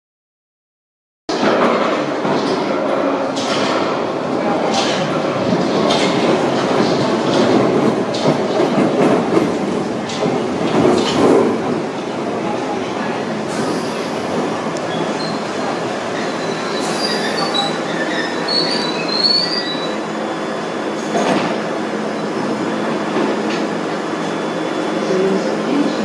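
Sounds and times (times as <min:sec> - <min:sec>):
train braking on steel rails: 0:03.3 - 0:26.0
brake squeals: 0:16.2 - 0:20.6.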